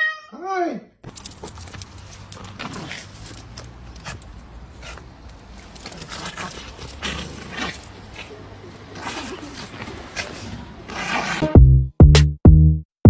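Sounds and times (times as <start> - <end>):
dogs scuffing: 1.0 - 11.4
dog grunts: 2.4 - 11.4.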